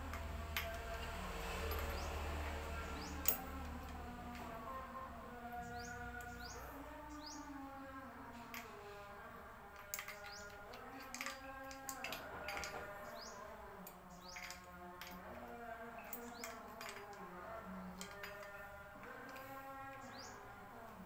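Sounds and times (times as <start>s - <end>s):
small birds chirping: 1.8s - 3.7s, 5.4s - 8.5s, 9.8s - 21.0s.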